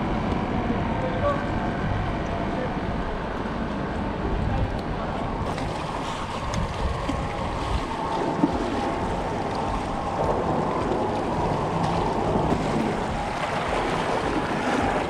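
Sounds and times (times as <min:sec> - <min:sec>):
wind buffeting microphone: 0:00.0 - 0:15.0
waves lapping against rocks: 0:05.4 - 0:15.0.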